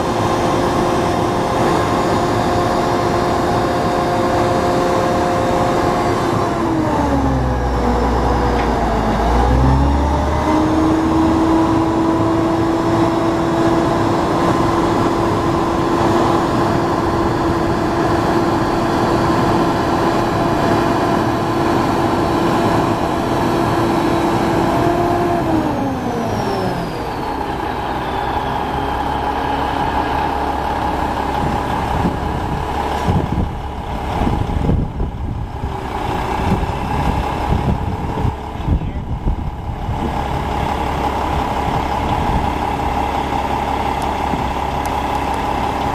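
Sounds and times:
diesel truck engine running: 0.0 - 45.9.

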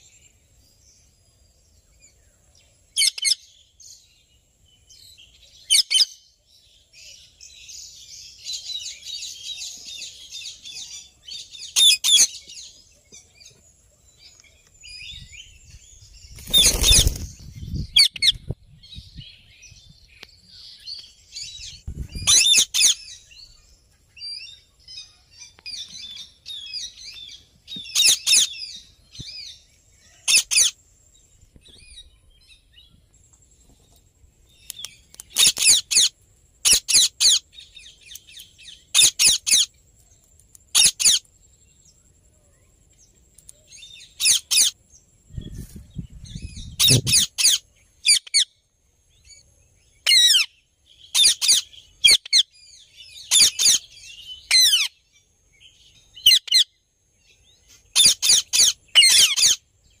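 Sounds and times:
parakeets screeching: 3.0 - 3.4, 5.7 - 6.2, 11.7 - 12.4, 16.4 - 17.3, 22.2 - 23.1, 27.9 - 28.6, 30.2 - 30.8, 35.4 - 37.4, 38.9 - 39.7, 40.7 - 41.2, 44.2 - 44.8, 46.8 - 48.4, 50.0 - 50.5, 51.1 - 52.5, 53.3 - 54.9, 56.2 - 56.7, 58.0 - 59.6.

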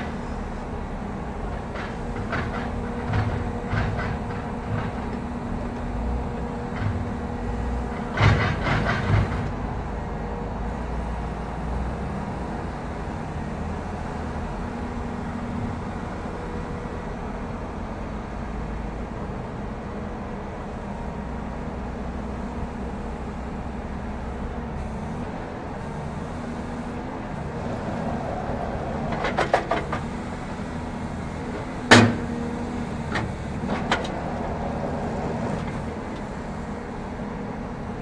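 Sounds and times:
forestry machine engine running: 0.0 - 19.8
metal clanks and knocks: 1.6 - 5.4, 7.9 - 9.6, 29.1 - 30.1, 31.8 - 32.4.

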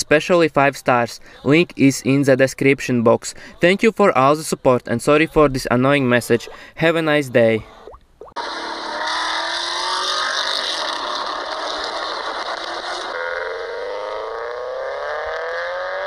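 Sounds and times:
car engine revving: 8.4 - 16.0
car engine revving with rising pitch: 8.4 - 16.0.

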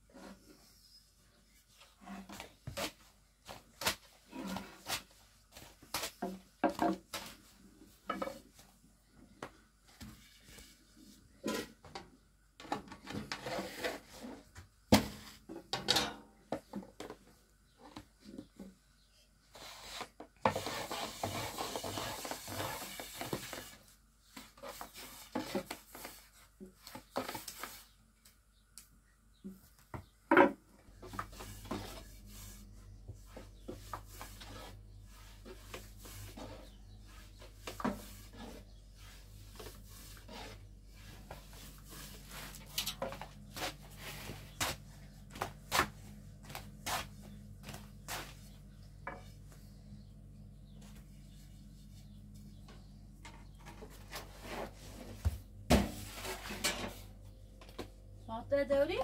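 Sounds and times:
rolling pin scraping board: 12.6 - 14.5, 19.5 - 27.8, 31.0 - 48.4.

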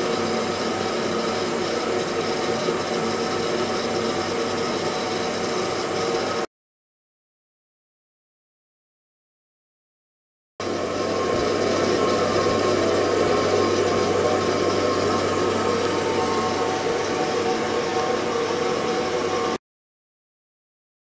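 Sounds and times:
ultrasonic tank hiss and hum: 10.6 - 19.6.

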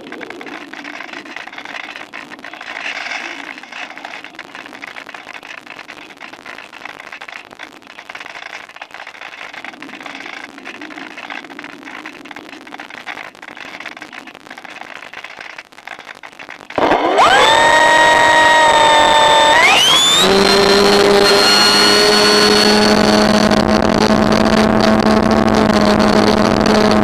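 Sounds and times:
steady crackling rushing noise: 0.0 - 27.0
electric motor and propeller whine: 16.8 - 27.0.

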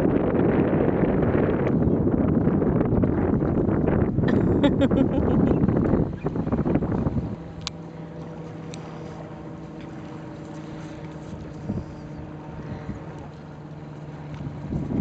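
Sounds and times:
wind noise: 0.0 - 7.8, 11.2 - 13.2, 14.3 - 15.0
low motor hum: 0.0 - 15.0.

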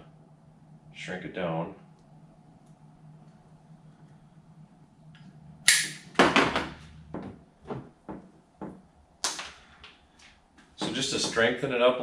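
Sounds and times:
tape snapping: 5.7 - 6.1.

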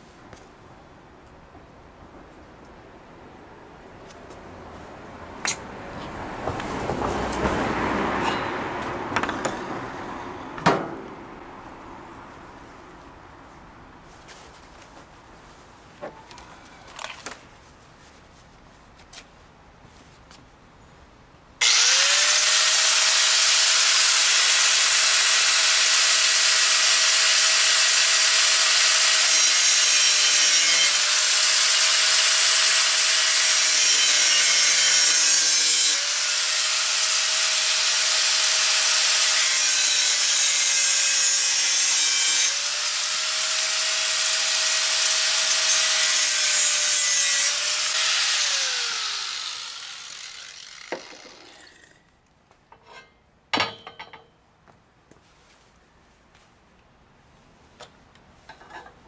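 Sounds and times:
angle grinder cutting metal: 21.6 - 52.0.

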